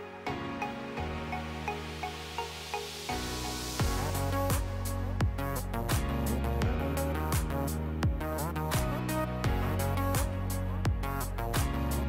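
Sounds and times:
sustained low chords: 3.8 - 12.0.

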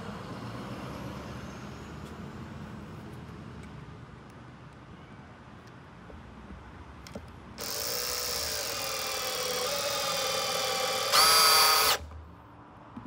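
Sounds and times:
cordless drill motor whine: 7.6 - 12.0.

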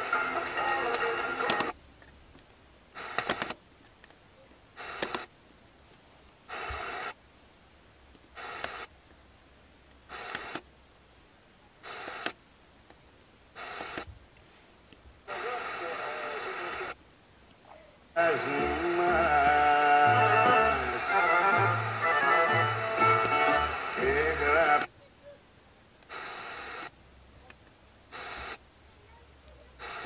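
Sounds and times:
radio station programme: 0.0 - 1.8, 15.2 - 17.0, 18.2 - 25.0
short bursts of radio reception: 0.0 - 1.8, 3.0 - 3.6, 4.8 - 5.3, 6.5 - 7.2, 8.4 - 8.9, 10.1 - 10.6, 11.8 - 12.4, 13.6 - 14.1, 15.2 - 17.0, 18.2 - 25.0, 26.1 - 26.9, 28.1 - 28.6, 29.7 - 30.0
radio tuner clicks: 0.0 - 4.2, 4.8 - 5.3, 6.5 - 7.2, 8.1 - 8.9, 10.1 - 10.7, 11.8 - 13.0, 13.6 - 14.2, 14.9 - 17.0, 20.3 - 21.1, 21.8 - 24.9, 26.0 - 28.6.

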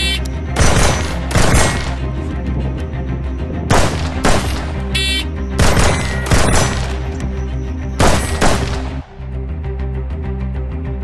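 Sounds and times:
background music: 0.0 - 11.0
rifle gunshots: 0.6 - 2.0, 3.7 - 4.8, 5.6 - 7.0, 8.0 - 9.1.

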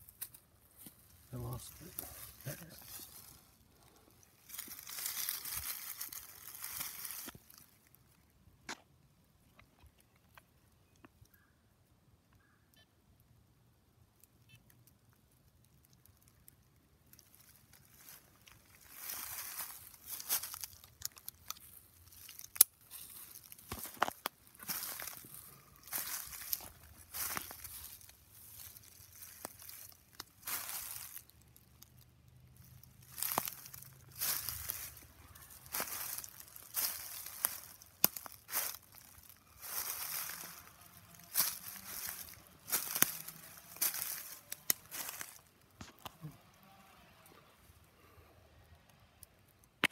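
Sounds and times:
footsteps crunching through dry leaves: 0.0 - 7.9, 17.1 - 46.2
twig snapping: 19.0 - 32.0, 33.1 - 35.0, 35.7 - 40.4, 41.3 - 46.2, 49.6 - 49.9.

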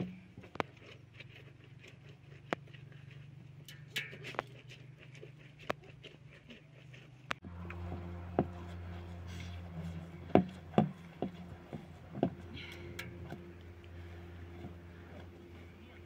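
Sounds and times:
steady low hum: 6.4 - 16.0.

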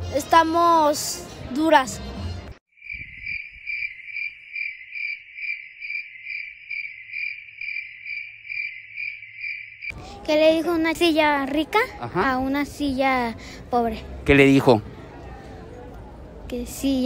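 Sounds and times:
cricket chirping: 2.7 - 9.9.

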